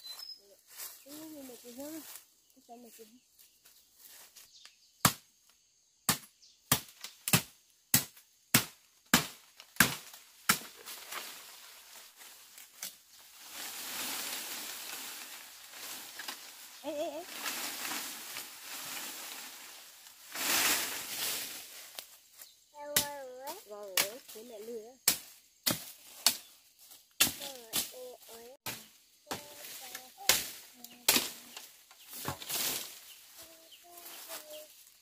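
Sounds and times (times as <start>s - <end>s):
rustling noise: 10.7s - 22.5s.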